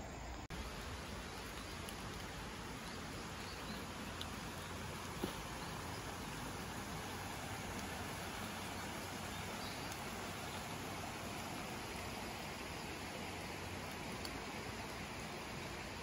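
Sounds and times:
light rain hissing: 0.0 - 16.0
river running over stones: 0.0 - 16.0.

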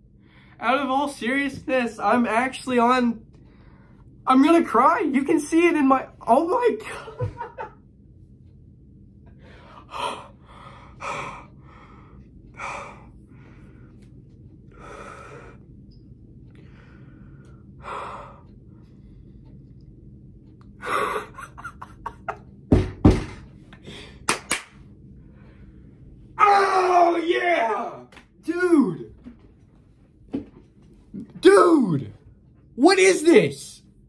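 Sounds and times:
heavy thumps: 22.7 - 23.6
sharp slaps: 24.3 - 24.8.

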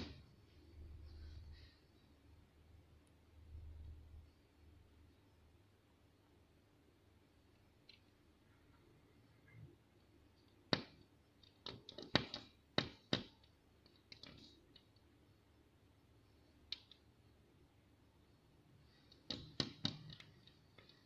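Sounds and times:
bird beak tapping on window glass: 19.1 - 21.0.

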